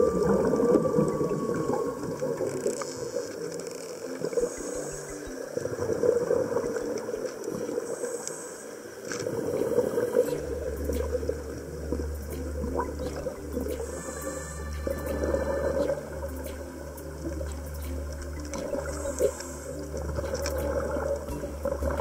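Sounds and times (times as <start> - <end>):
underwater gurgling rush: 0.0 - 4.9
faint clicks: 0.4 - 22.0
low hum: 9.3 - 22.0.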